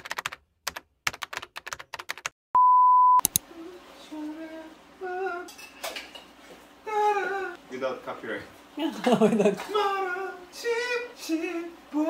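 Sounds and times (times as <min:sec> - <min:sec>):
single-pitch beep: 0:02.6 - 0:03.2.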